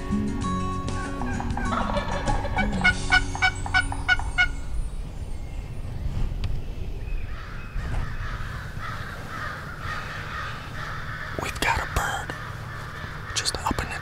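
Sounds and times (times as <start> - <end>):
wild turkey gobbling: 0.9 - 4.6.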